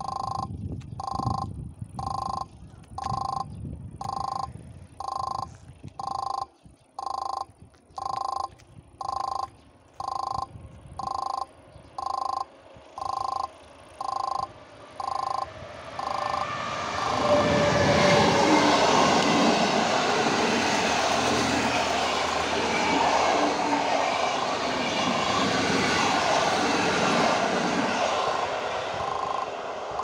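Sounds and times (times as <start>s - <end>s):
passenger train passing: 12.5s - 30.0s.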